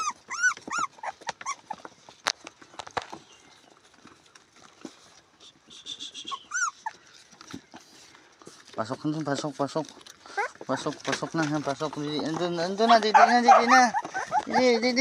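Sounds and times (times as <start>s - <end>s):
puppies whimpering and yipping: 0.0s - 2.2s, 6.0s - 8.0s, 10.2s - 15.0s.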